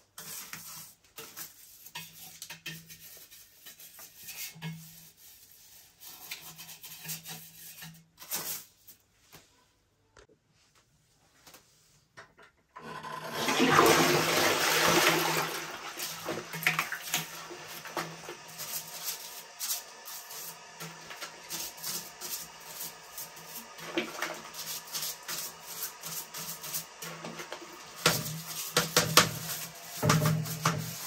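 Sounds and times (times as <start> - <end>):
toilet brush scrubbing bowl: 0.0 - 9.0, 12.8 - 31.0
toilet flush: 12.8 - 31.0.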